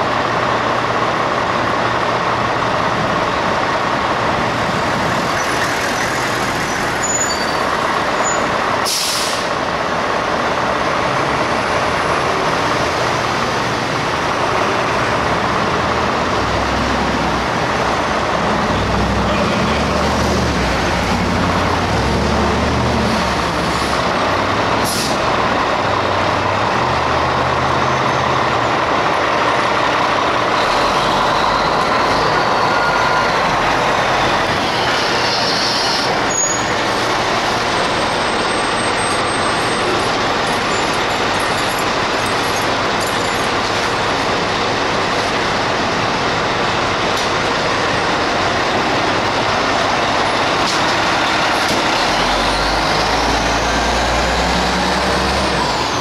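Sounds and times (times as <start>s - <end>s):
diesel engine running: 0.0s - 56.0s
air brakes hissing: 8.2s - 9.6s, 24.8s - 25.3s.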